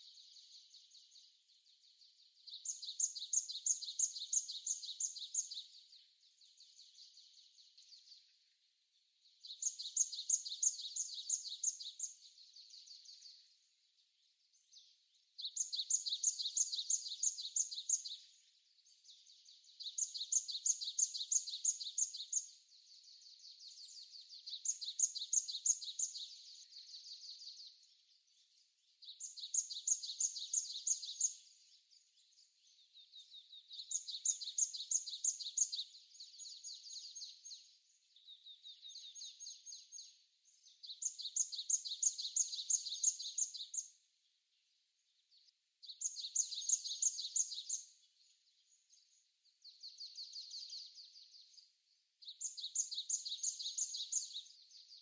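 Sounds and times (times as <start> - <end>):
great tit singing: 0.0 - 55.0.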